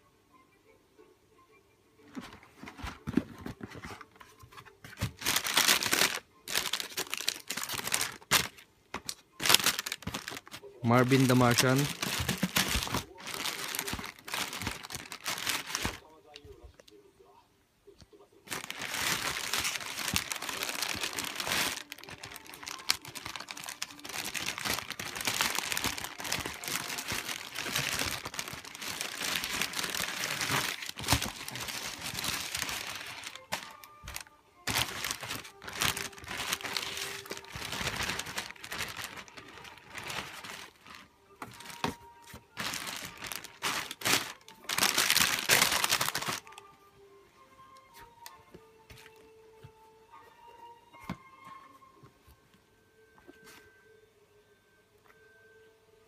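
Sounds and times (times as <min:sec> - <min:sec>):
tissue paper rustling: 0:02.2 - 0:08.6, 0:09.4 - 0:16.0, 0:18.5 - 0:46.6
plastic bag crinkling: 0:04.9 - 0:08.6, 0:09.4 - 0:16.0, 0:18.5 - 0:46.6.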